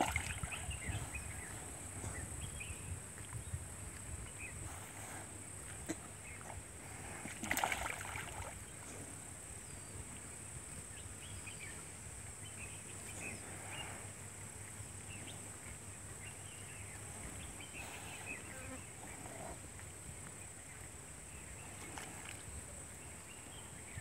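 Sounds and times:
water splash: 0:00.0 - 0:00.6, 0:07.2 - 0:08.6
water sloshing: 0:00.0 - 0:01.0, 0:07.1 - 0:08.7.

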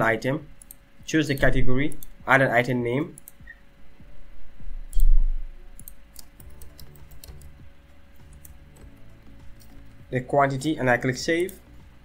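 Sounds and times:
typing on keyboard: 0:05.8 - 0:07.6.

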